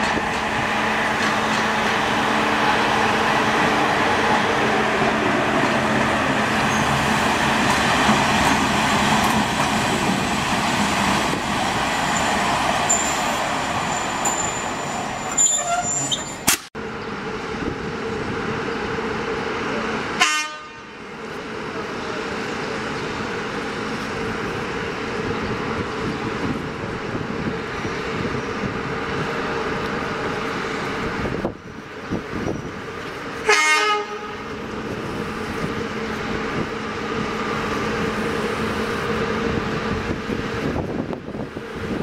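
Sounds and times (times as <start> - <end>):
electric locomotive humming: 0.0 - 42.0
train rolling noise: 0.0 - 42.0
train horn toot: 20.2 - 20.9, 33.4 - 34.4.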